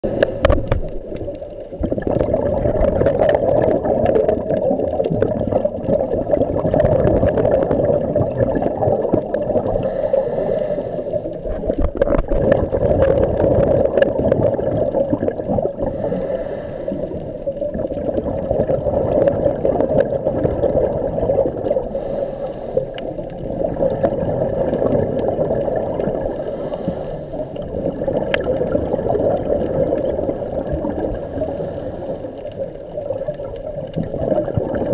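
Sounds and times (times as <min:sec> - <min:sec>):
regulator hiss on inhale: 0:00.0 - 0:01.5, 0:09.6 - 0:11.7, 0:15.8 - 0:17.7, 0:21.7 - 0:23.6, 0:26.2 - 0:27.9, 0:31.0 - 0:32.9
exhaled bubbles underwater: 0:00.0 - 0:34.9.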